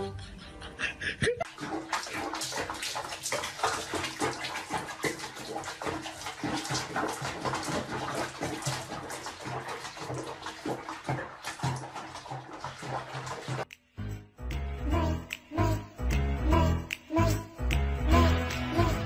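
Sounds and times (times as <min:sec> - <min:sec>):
water splashing in plastic basin: 0:01.4 - 0:13.7.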